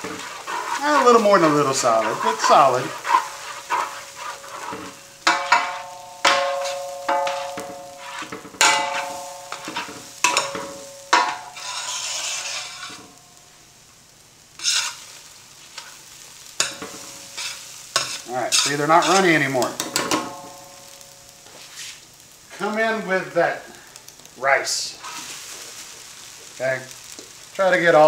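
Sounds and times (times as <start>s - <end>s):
metal ladle scraping and knocking pan: 0.0s - 13.2s, 14.6s - 15.0s, 16.6s - 21.0s
eggs sizzling in oil: 0.0s - 28.0s.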